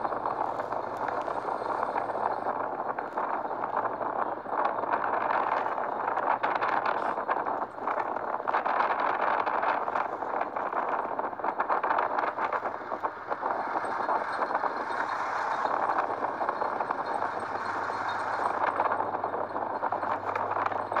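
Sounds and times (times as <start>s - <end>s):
motorcycle engine running: 0.0s - 21.0s
wind and road noise: 0.0s - 21.0s.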